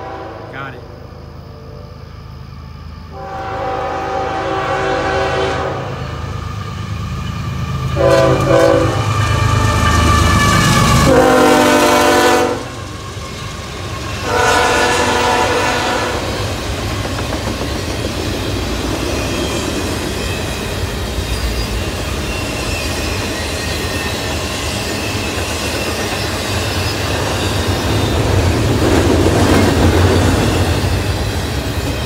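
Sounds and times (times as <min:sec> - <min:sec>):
locomotive horn blasts: 0:00.0 - 0:00.9, 0:03.2 - 0:06.0, 0:08.0 - 0:09.1, 0:11.0 - 0:12.7, 0:14.2 - 0:16.3
train rumbling past: 0:00.0 - 0:32.0.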